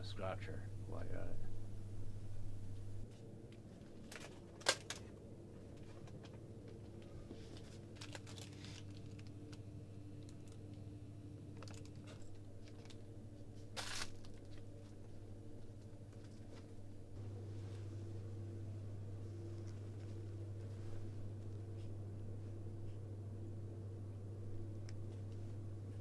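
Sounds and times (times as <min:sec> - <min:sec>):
steady low hum: 0:00.0 - 0:26.0
packets clicking and rustling: 0:03.9 - 0:05.1, 0:05.7 - 0:09.6, 0:11.6 - 0:13.0, 0:13.7 - 0:15.0.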